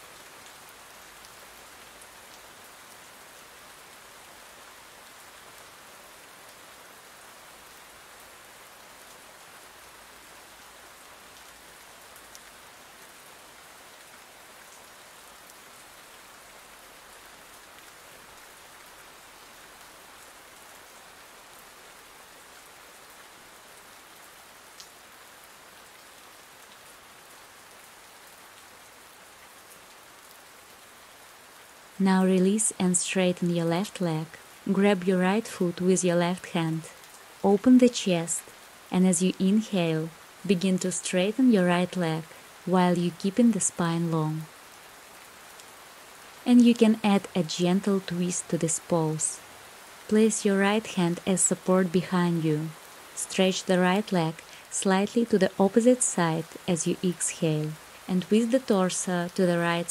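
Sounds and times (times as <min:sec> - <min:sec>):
rain falling: 0:00.0 - 0:59.9.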